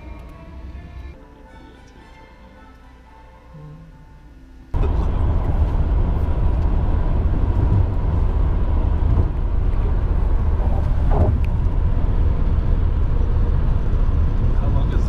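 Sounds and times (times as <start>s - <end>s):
faint steady hum: 0.0s - 15.0s
vehicle rumble: 4.7s - 15.0s.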